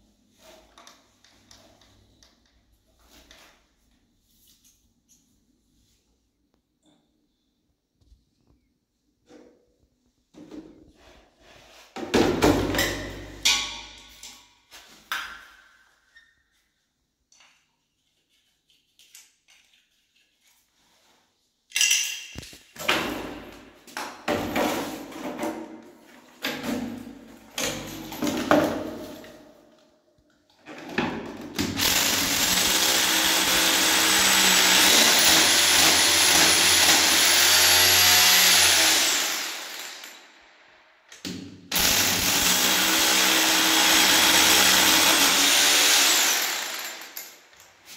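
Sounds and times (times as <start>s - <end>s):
tools knocking and clattering: 12.0s - 14.5s, 21.7s - 29.6s
electric drill whining: 31.8s - 40.2s, 41.8s - 47.2s.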